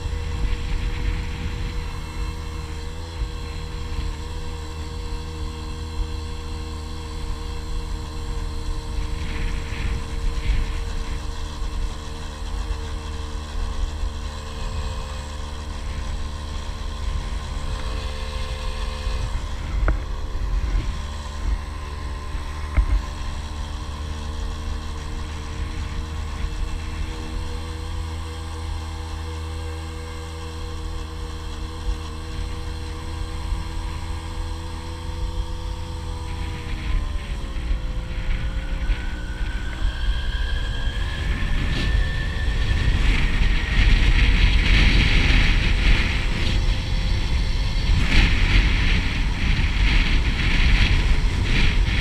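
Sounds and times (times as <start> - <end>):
small motorcycle engine running: 0.0 - 52.0
wind rumble on microphone: 0.0 - 52.0.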